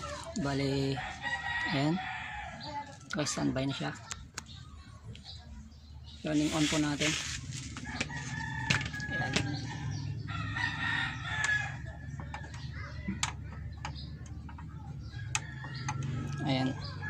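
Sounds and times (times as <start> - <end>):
rooster crowing: 7.8 - 12.2.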